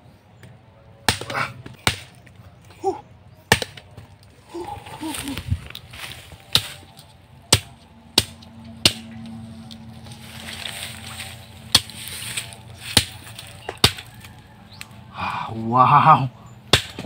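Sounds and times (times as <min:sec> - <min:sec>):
faint steady drone: 0:00.0 - 0:17.0
machete chopping fruit: 0:01.0 - 0:02.3, 0:03.4 - 0:05.4, 0:06.4 - 0:09.8, 0:11.7 - 0:14.9, 0:16.6 - 0:17.0.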